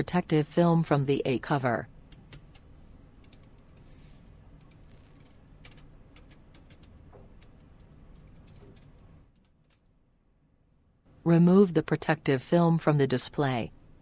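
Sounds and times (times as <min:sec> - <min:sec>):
low steady hum: 0:00.0 - 0:14.0
plastic film peeling: 0:04.8 - 0:05.4.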